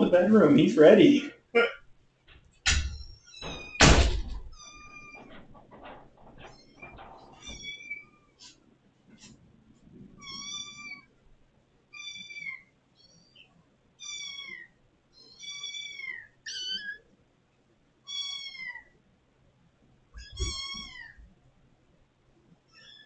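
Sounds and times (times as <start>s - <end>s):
kittens meowing: 6.6s - 8.3s, 10.2s - 11.1s, 11.9s - 13.4s, 14.0s - 17.0s, 18.1s - 18.9s, 20.2s - 21.3s.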